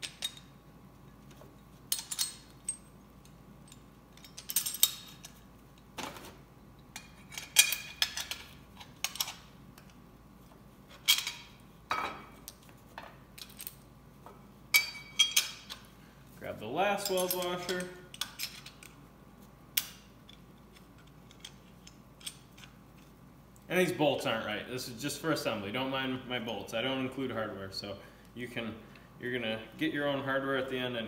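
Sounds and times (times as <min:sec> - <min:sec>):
metal parts clinking: 0:00.0 - 0:00.5, 0:01.9 - 0:05.4, 0:06.9 - 0:09.9, 0:10.9 - 0:11.6, 0:17.0 - 0:18.9.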